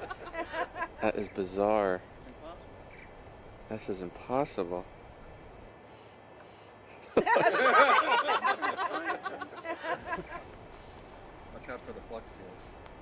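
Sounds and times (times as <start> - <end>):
crickets chirping: 0.0 - 6.1, 10.0 - 13.0.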